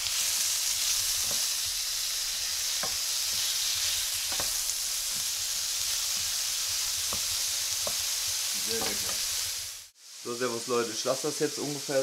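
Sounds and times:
food sizzling in a frying pan: 0.0 - 12.0
wooden spoon scraping a pan: 0.7 - 1.8, 2.5 - 9.5.

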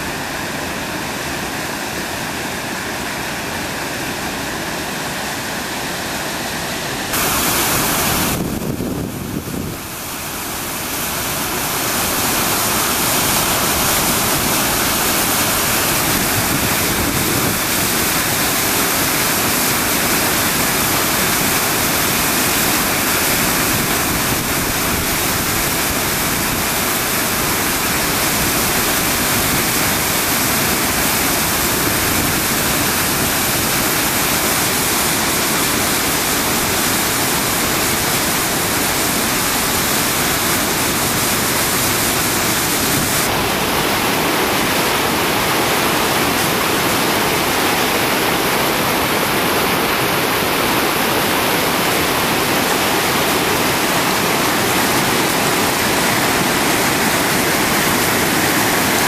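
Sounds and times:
waterfall rushing: 0.0 - 59.0.

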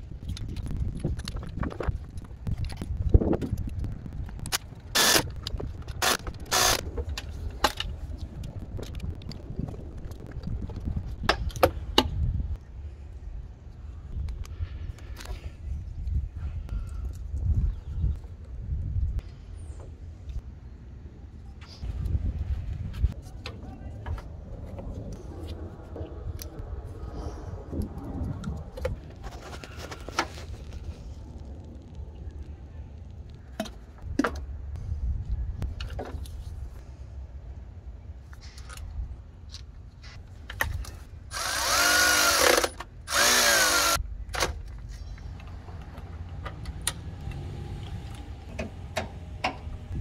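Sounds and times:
power tool motor running: 41.3 - 44.0.

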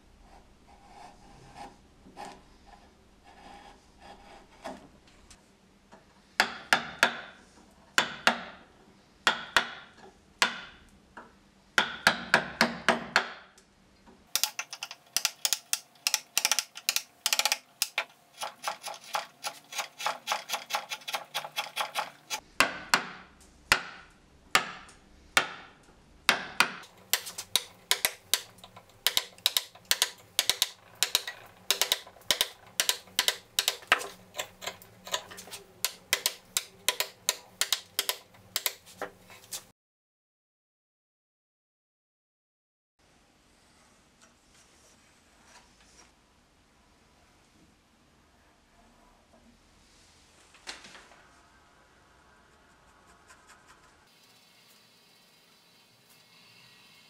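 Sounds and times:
carving gouge tapping wood: 6.4 - 7.3, 8.0 - 8.6, 9.3 - 10.8, 11.8 - 13.4, 14.4 - 25.7, 26.3 - 38.9.

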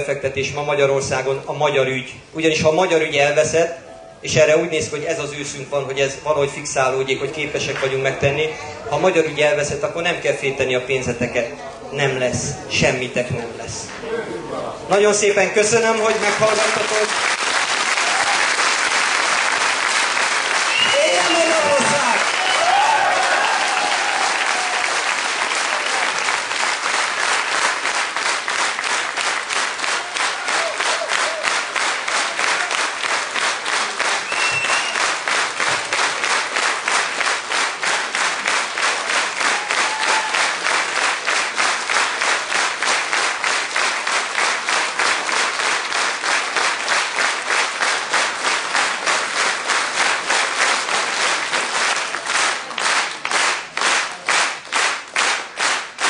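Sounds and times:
crowd applauding: 16.0 - 56.0.

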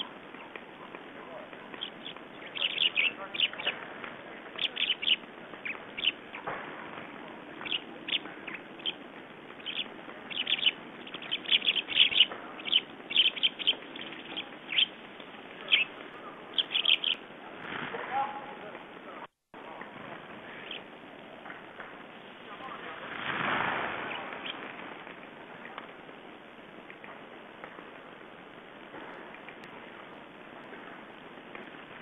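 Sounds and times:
songbirds chirping: 0.0 - 17.6, 18.2 - 23.0, 24.0 - 28.8
steady hiss: 0.0 - 32.0.

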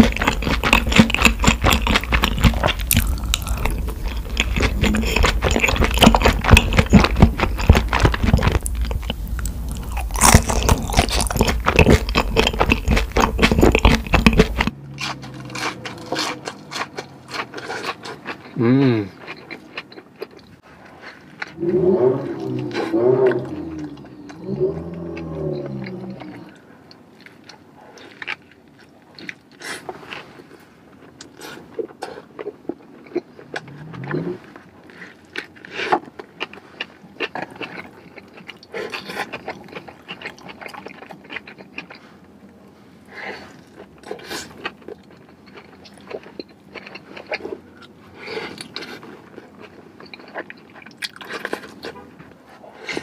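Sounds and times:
person chewing food: 0.0 - 53.0
person humming mmm: 2.8 - 6.1, 18.6 - 19.2.

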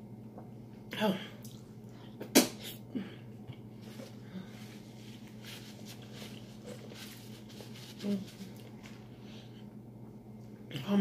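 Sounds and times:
paper napkin crackling: 3.8 - 9.1.

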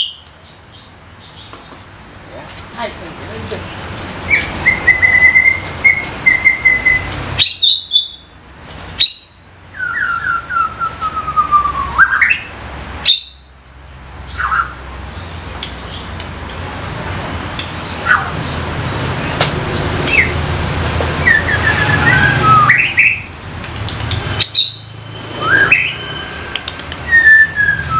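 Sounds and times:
bird singing whistled notes: 4.3 - 8.3, 9.0 - 12.5, 13.1 - 13.5, 21.2 - 23.3, 24.3 - 26.4, 27.0 - 27.9.

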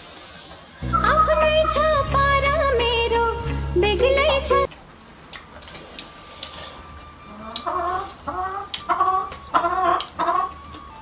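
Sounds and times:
hen clucking: 7.3 - 10.7.

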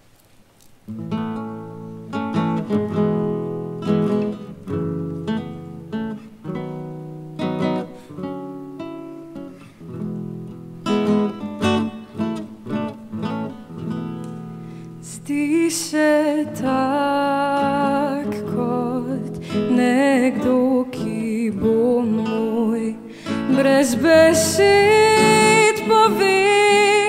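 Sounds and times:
acoustic guitar strumming: 0.9 - 15.0, 17.6 - 27.0.

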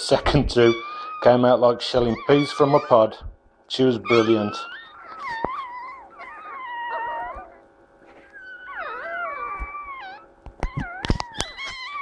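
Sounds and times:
puppies squealing: 0.0 - 12.0.

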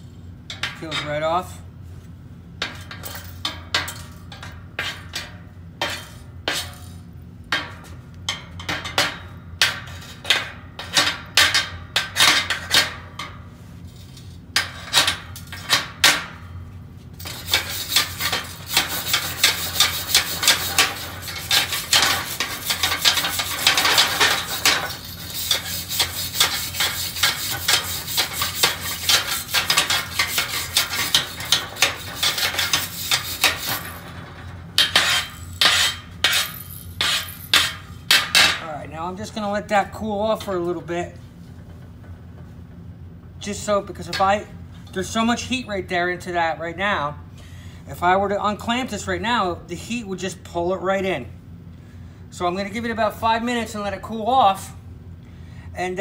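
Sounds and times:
wire brush scrubbing metal: 17.2 - 34.2, 34.8 - 38.4.

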